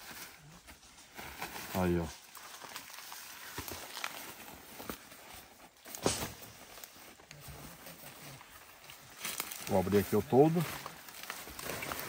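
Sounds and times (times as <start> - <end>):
camping gear rustling and knocking: 0.0 - 12.0.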